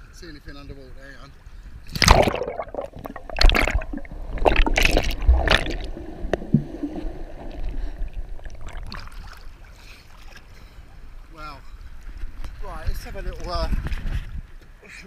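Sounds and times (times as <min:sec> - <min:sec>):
muffled underwater wash: 0:01.6 - 0:12.3
sea water splashing: 0:01.9 - 0:10.6.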